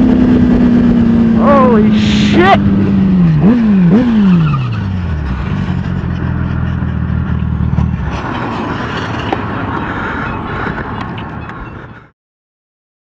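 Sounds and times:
wind noise: 0:00.0 - 0:03.5.

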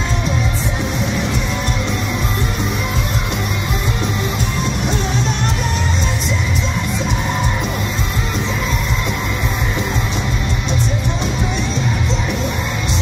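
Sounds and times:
drums: 0:00.0 - 0:13.0
electric guitars: 0:00.0 - 0:13.0
person singing: 0:04.3 - 0:13.0.

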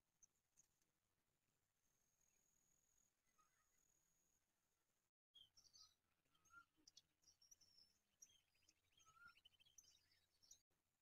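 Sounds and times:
faint bird chirps: 0:01.9 - 0:04.7, 0:05.3 - 0:11.0.

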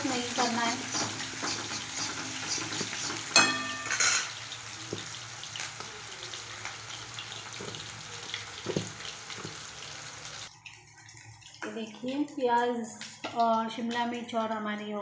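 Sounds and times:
vegetables sizzling in oil: 0:00.0 - 0:14.7
metal spatula scraping pan: 0:00.7 - 0:04.4.

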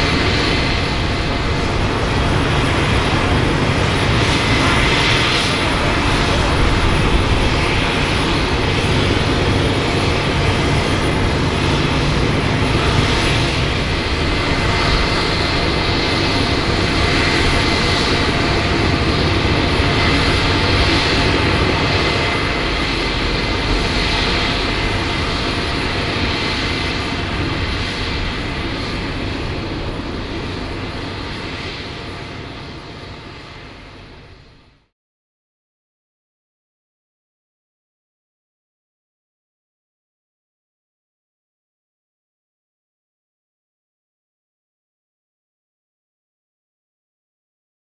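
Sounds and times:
jet engines idling: 0:00.0 - 0:34.8.

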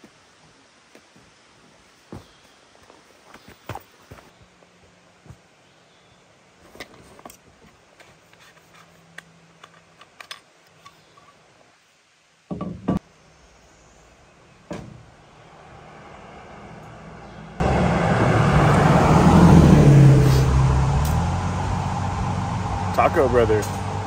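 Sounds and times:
car approaching on road: 0:15.1 - 0:24.0.

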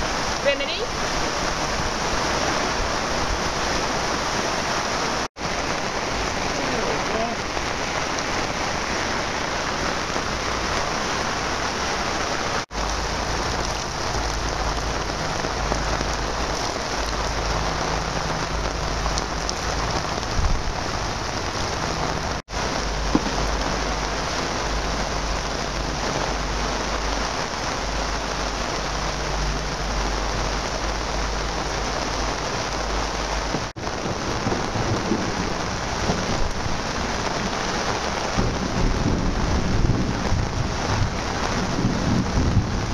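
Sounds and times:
heavy rain pouring: 0:00.0 - 0:42.9
low thunder rumble: 0:12.7 - 0:42.9.

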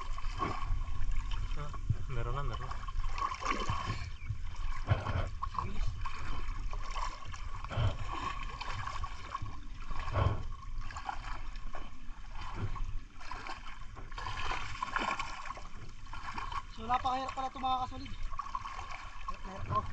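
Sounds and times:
river water splashing: 0:00.0 - 0:19.9
low thumps: 0:03.7 - 0:06.2.

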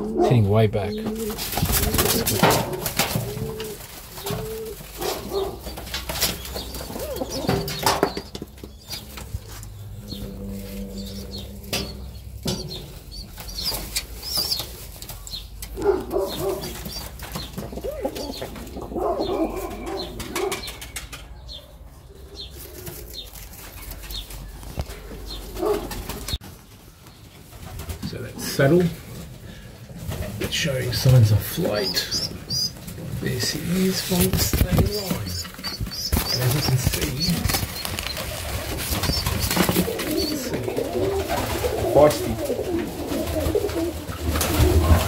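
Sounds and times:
pigeons cooing: 0:00.0 - 0:26.4, 0:28.6 - 0:45.0
pigeon wings flapping: 0:01.1 - 0:08.8, 0:33.9 - 0:45.0.

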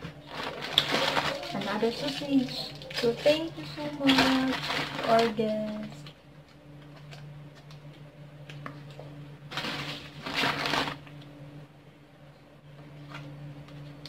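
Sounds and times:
plastic bag rustling: 0:00.0 - 0:06.2, 0:09.5 - 0:11.2
steady low hum: 0:00.0 - 0:14.0.

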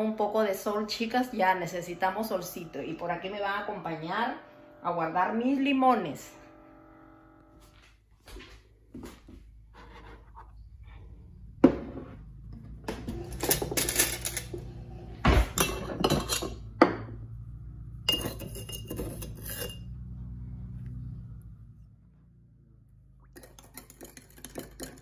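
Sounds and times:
steady low hum: 0:00.0 - 0:25.0
cups and dishes clinking: 0:15.3 - 0:17.1, 0:18.1 - 0:19.9, 0:23.4 - 0:25.0.

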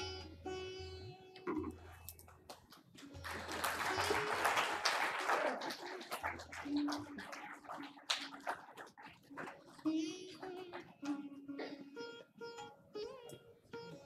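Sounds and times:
audience applause: 0:03.0 - 0:09.9
low chatter: 0:03.0 - 0:14.0.

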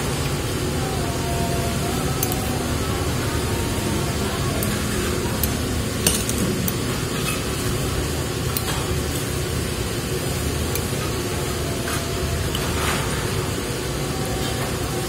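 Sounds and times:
steady background hum: 0:00.0 - 0:15.0
chopsticks clicking against bowl: 0:02.2 - 0:02.5.

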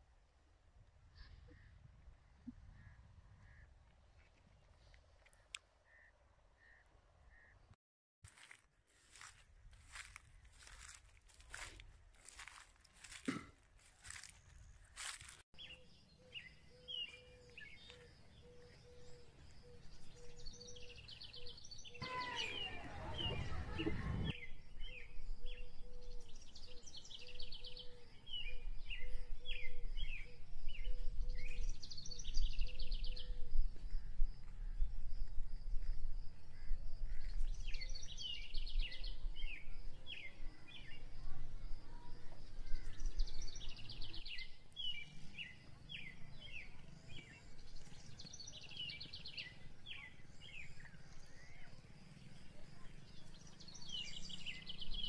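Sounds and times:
wind rumbling on microphone: 0:22.6 - 0:26.8, 0:27.7 - 0:45.3.

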